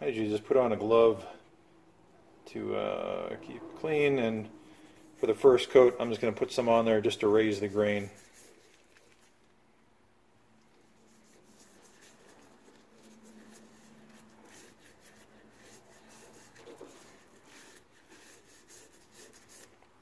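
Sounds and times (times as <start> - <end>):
gloved hand rubbing wood: 3.8 - 9.4, 10.8 - 20.0.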